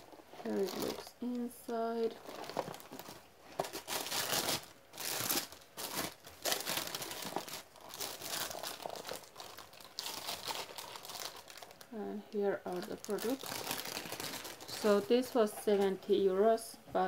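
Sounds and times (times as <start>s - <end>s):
tissue paper crinkling: 0.0s - 11.9s, 12.7s - 15.4s.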